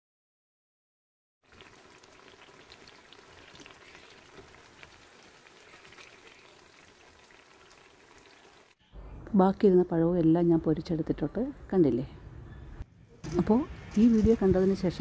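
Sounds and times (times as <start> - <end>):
plantain deep-frying in oil: 1.4 - 8.8.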